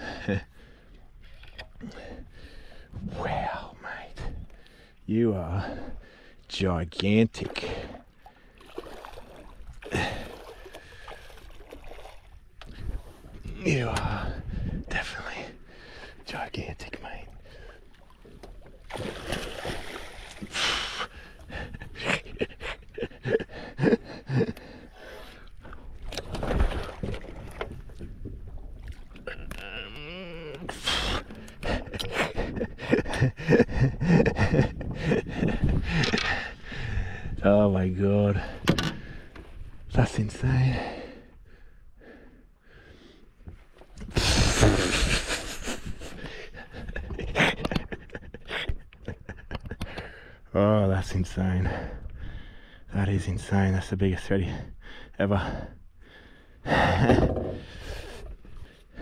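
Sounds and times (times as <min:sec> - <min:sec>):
man panting and grunting: 0:20.5 - 0:25.0, 0:54.5 - 0:58.2.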